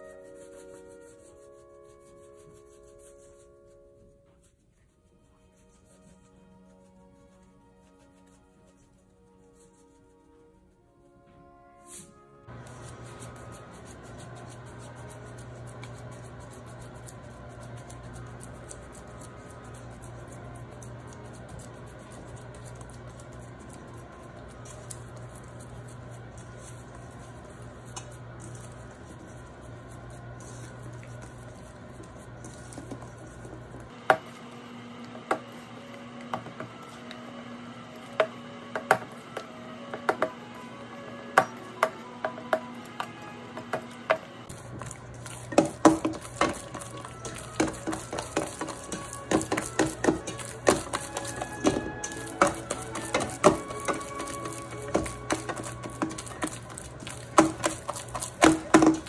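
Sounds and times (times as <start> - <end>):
quiet background music: 0.0 - 59.0.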